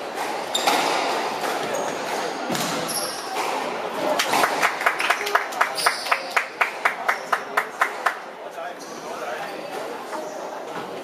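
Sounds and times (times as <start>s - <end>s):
sharp hand claps: 4.2s - 8.2s.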